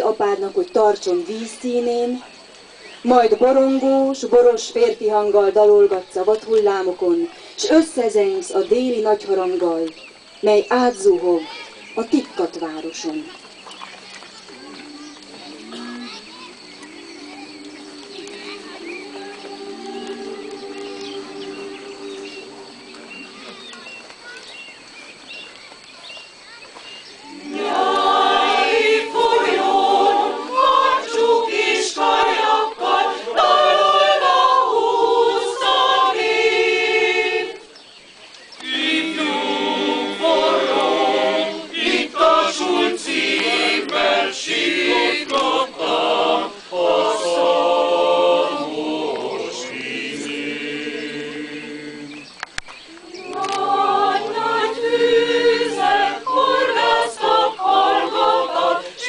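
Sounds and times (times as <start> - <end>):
mixed choir singing: 14.5 - 24.0, 27.2 - 37.8, 38.6 - 59.0.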